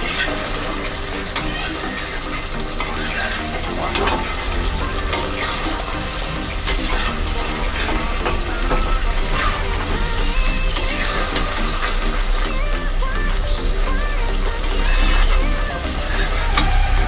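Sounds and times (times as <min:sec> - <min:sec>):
spatula stirring and scraping: 0:00.0 - 0:10.0
curry sizzling in a pan: 0:00.0 - 0:17.0.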